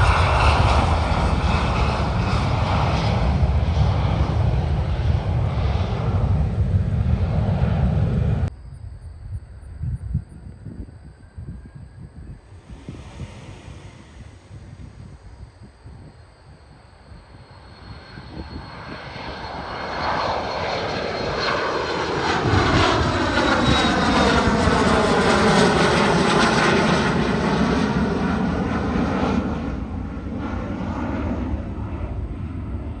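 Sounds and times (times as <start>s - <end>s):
jet engine noise: 0.0s - 33.0s
faint high whine: 8.4s - 33.0s.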